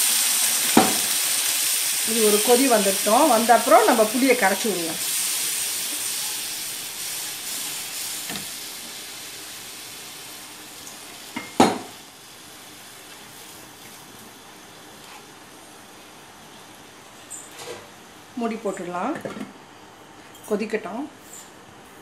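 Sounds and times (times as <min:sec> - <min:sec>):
gravy sizzling in a frying pan: 0:00.0 - 0:17.2.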